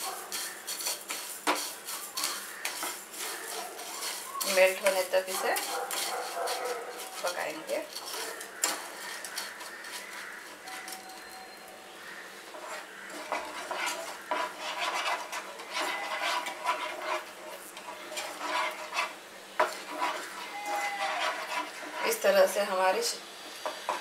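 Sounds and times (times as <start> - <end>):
wooden spatula scraping frying pan: 0.0 - 24.0.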